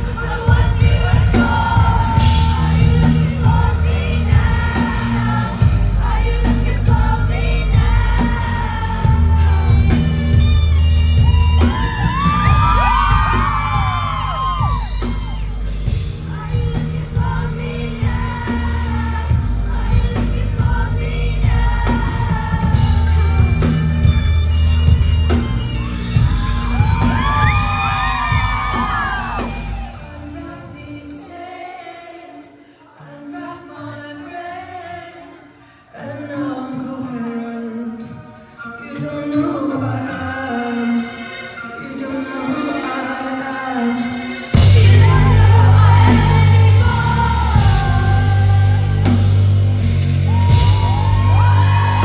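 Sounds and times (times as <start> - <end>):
person singing into microphone: 0.0 - 24.3, 26.1 - 52.0
heavy bass and drum beat: 0.0 - 30.3, 44.6 - 52.0
live band playing: 0.0 - 31.0, 38.8 - 52.0.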